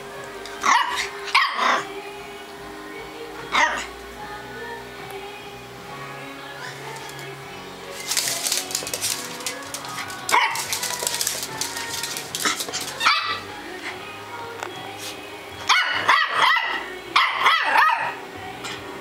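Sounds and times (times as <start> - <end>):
dog barking: 0.6 - 1.8, 10.3 - 10.7, 13.0 - 13.4, 15.7 - 18.2.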